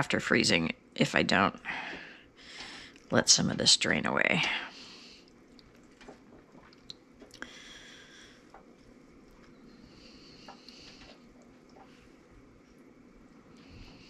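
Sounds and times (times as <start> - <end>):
soft wet squishing: 4.3 - 14.0.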